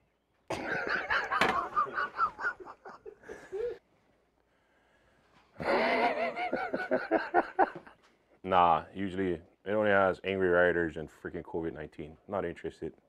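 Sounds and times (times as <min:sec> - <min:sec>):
man laughing: 0:00.5 - 0:03.8, 0:05.6 - 0:07.9.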